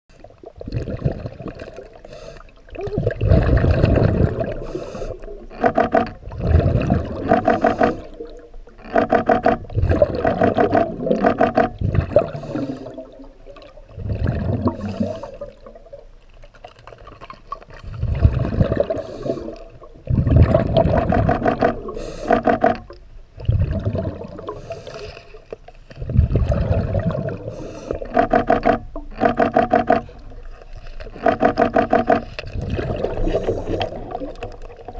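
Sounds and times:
exhaled bubbles rushing: 0.1s - 25.1s, 26.0s - 34.9s
regulator breathing underwater: 2.0s - 13.2s, 14.0s - 15.7s, 18.7s - 19.8s, 21.0s - 22.9s, 24.4s - 25.5s, 26.4s - 30.5s, 31.1s - 34.3s.

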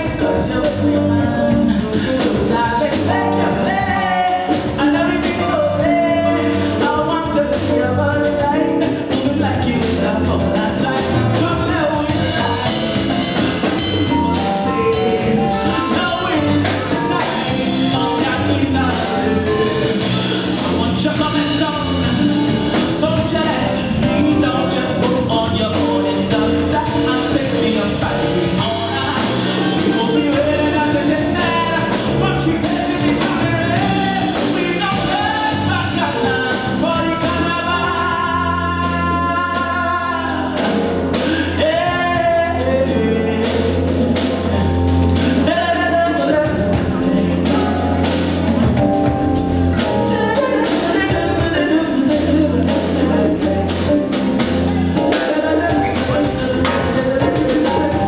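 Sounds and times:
bass guitar: 0.0s - 58.0s
drum kit: 0.0s - 58.0s
keyboard: 0.0s - 58.0s
saxophone: 46.6s - 58.0s.

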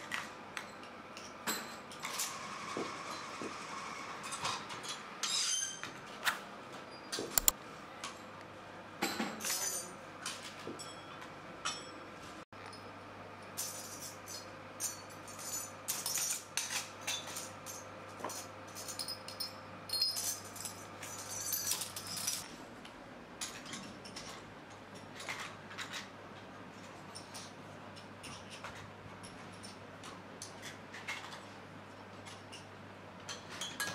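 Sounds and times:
metal parts clinking: 18.7s - 22.4s.

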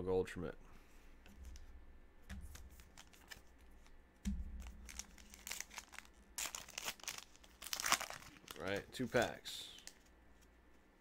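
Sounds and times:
wrapper crinkling: 2.5s - 4.0s, 4.6s - 10.5s
wrapper tearing open: 4.6s - 10.1s.

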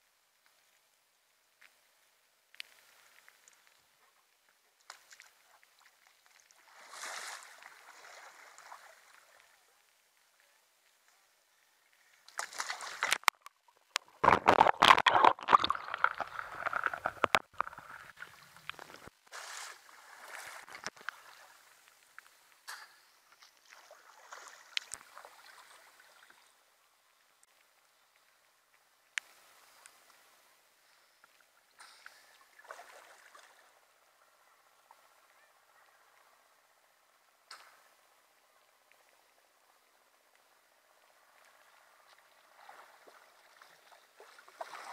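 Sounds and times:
water splashing around kayak: 4.8s - 10.3s, 12.2s - 22.6s, 23.3s - 26.7s, 41.1s - 44.9s
water dripping: 11.9s - 19.1s.

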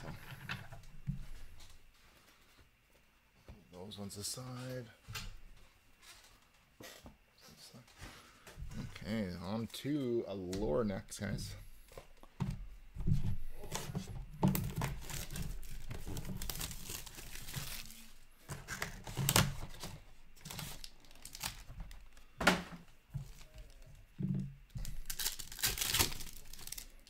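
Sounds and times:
foil packs crinkling: 13.6s - 22.3s, 24.7s - 27.0s
plastic wrap tearing: 14.5s - 22.2s, 24.8s - 27.0s
foil pack tearing open: 14.6s - 22.2s, 24.8s - 27.0s.

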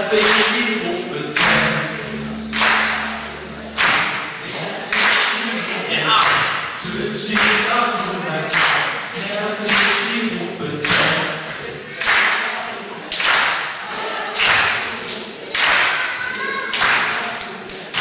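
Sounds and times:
children's band group singing: 0.0s - 18.0s
sharp percussive hits: 1.4s - 5.3s.

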